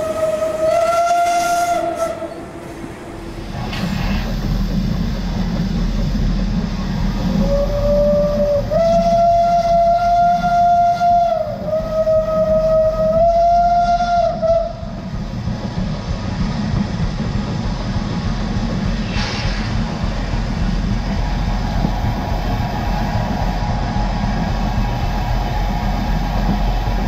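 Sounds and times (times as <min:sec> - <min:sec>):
steam whistle long blast: 0:00.0 - 0:03.4, 0:07.3 - 0:14.9
rumble of moving train: 0:00.0 - 0:27.0.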